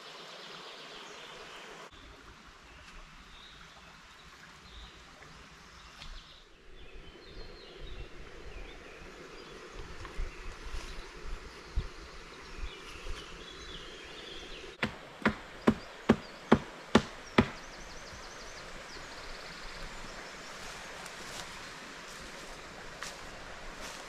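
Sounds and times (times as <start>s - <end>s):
axe chopping wood: 14.8s - 17.6s.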